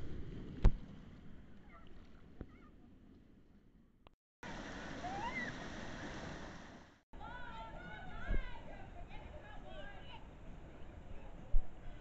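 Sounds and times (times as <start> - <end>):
rushing splashing water: 4.4 - 7.0
steady wash of water: 4.4 - 7.0.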